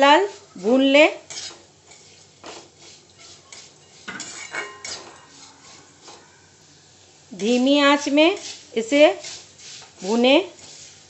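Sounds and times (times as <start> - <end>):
metal spatula scraping a pan: 0.0 - 6.6, 7.4 - 11.0.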